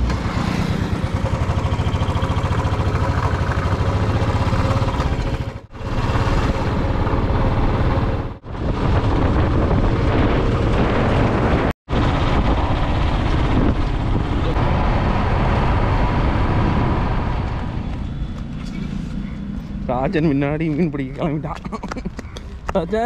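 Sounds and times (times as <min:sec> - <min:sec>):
vehicle engine running: 0:00.0 - 0:22.8
road and wind noise: 0:00.0 - 0:23.0.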